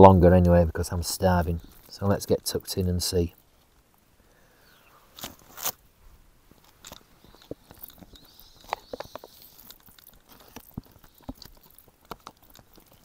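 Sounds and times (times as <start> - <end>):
man chewing: 6.6 - 13.0.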